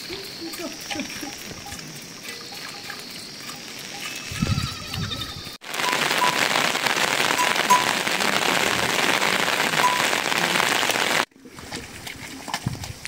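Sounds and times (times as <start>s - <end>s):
heavy rain falling: 5.5s - 11.3s.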